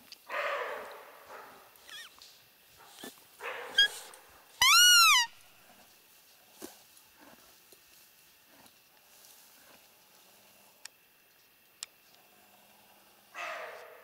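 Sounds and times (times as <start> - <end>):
deer alarm bark: 0.3 - 1.0
high squealing call: 1.8 - 2.2, 3.8 - 5.4.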